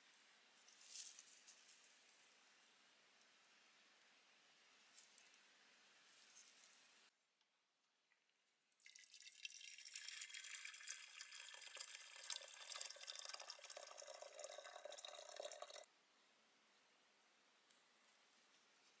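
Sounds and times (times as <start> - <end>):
water pouring into teapot: 8.8 - 15.9.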